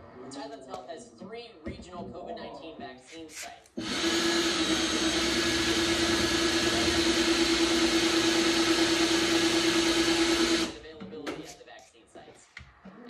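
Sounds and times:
power drill motor whine: 0:03.8 - 0:10.8.

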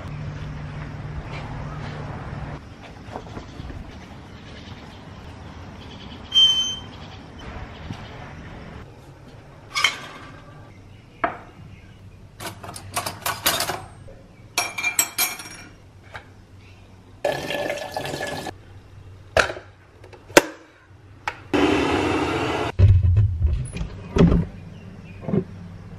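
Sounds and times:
water rushing into kettle: 0:17.3 - 0:18.5.

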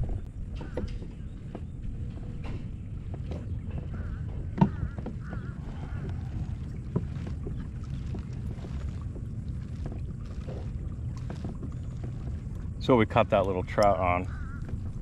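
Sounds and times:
wind rumble on microphone: 0:00.0 - 0:15.0
knocks on kayak hull: 0:03.2 - 0:05.6.

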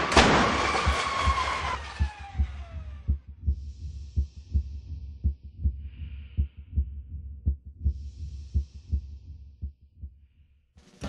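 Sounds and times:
car crashing into wall: 0:00.0 - 0:02.6
crunching metal: 0:00.0 - 0:02.8
low heartbeat-like thumps: 0:00.0 - 0:10.5.

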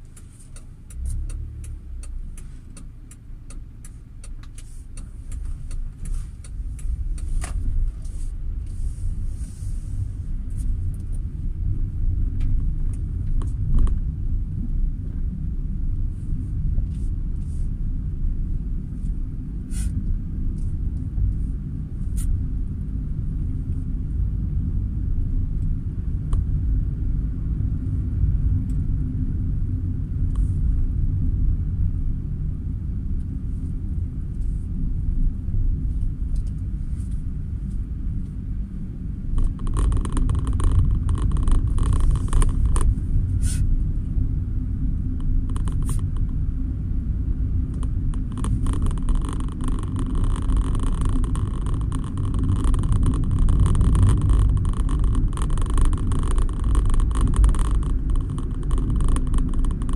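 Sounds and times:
car engine and road rumble: 0:00.0 - 0:59.9
faint clicks: 0:47.7 - 0:59.9.

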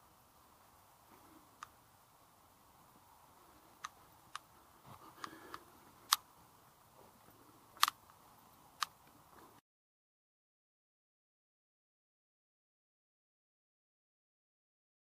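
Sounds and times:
faint steady hiss: 0:00.0 - 0:09.6
sharp clicks: 0:03.8 - 0:04.5, 0:05.1 - 0:06.3, 0:07.8 - 0:08.2, 0:08.8 - 0:09.2.

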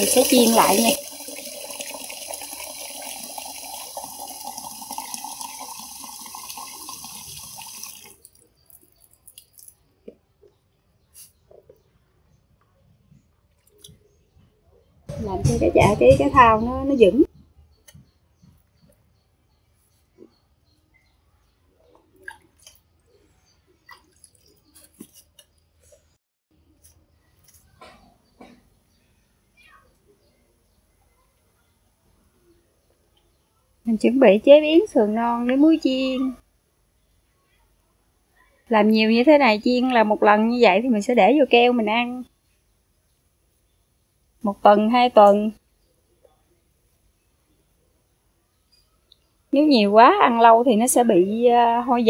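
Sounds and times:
tap water filling plastic jar: 0:00.0 - 0:08.4.

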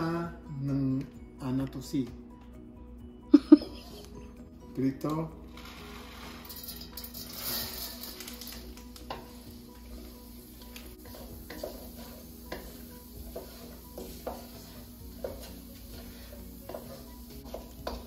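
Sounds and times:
wooden spatula scraping pan: 0:05.6 - 0:08.2, 0:11.0 - 0:18.0
faint oil sizzle: 0:05.6 - 0:18.0.

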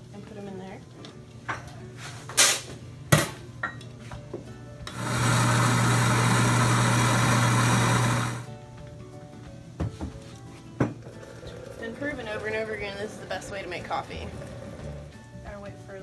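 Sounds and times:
coffee grinder grinding beans: 0:04.9 - 0:08.5.

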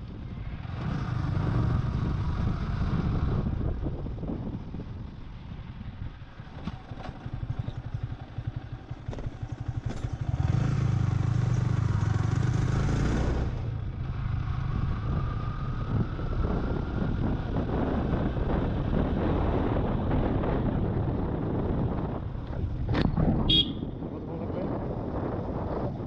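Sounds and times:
motorcycle engine revving: 0:06.2 - 0:26.0.

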